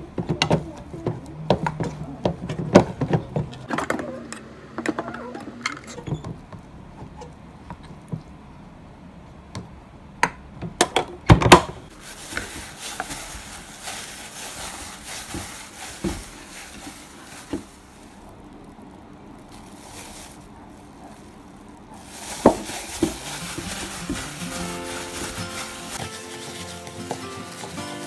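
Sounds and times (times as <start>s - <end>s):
plastic gloves crinkling: 11.9s - 28.0s
rice paddle scraping a pot: 22.0s - 28.0s.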